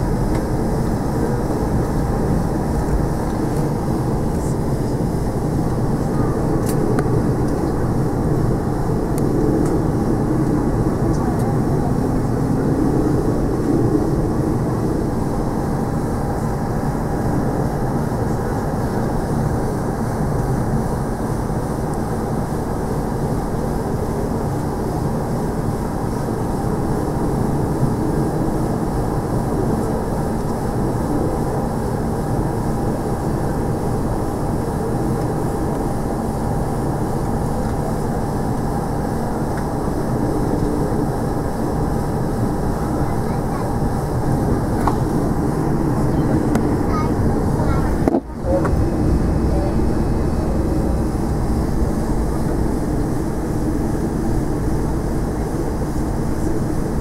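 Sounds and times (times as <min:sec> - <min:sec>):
airliner engine and cabin rumble: 0:00.0 - 0:57.0.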